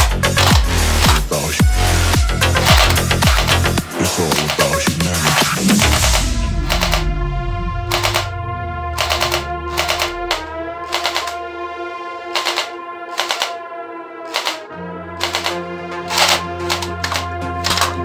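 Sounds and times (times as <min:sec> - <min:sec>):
electronic music with synth chords: 0:00.0 - 0:18.0
toy blaster rapid clicking shots: 0:02.6 - 0:03.7, 0:04.4 - 0:07.0, 0:07.9 - 0:08.3, 0:09.0 - 0:11.4, 0:12.4 - 0:13.6, 0:14.3 - 0:15.6.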